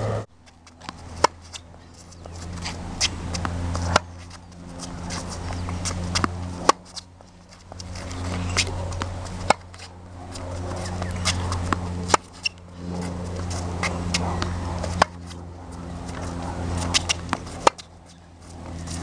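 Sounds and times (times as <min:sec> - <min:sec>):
steady low hum: 0:00.0 - 0:19.0
ball bounces: 0:00.6 - 0:07.0, 0:07.6 - 0:17.9
tennis racket striking ball: 0:00.6 - 0:19.0.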